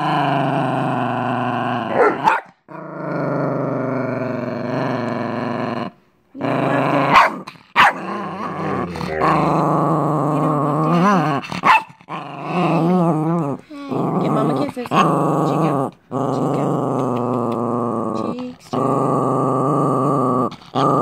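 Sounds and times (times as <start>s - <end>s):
small dog growling: 0.0s - 21.0s
dog barking outbursts: 1.9s - 2.6s, 7.1s - 8.2s, 11.6s - 12.0s.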